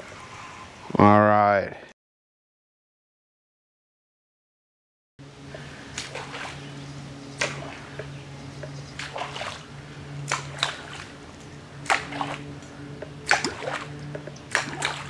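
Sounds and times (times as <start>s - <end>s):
steady low hum: 5.2s - 15.0s
underwater splashy pops: 13.2s - 15.0s.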